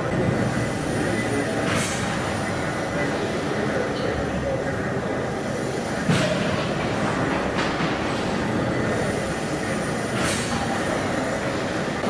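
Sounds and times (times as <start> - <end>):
steam engine clatter and rumble: 0.0 - 12.0.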